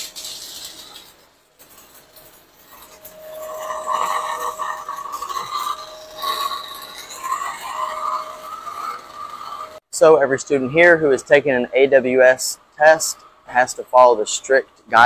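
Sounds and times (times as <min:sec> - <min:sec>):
welding arc crackling and hissing: 0:00.0 - 0:09.8
steady high hum: 0:00.0 - 0:15.0.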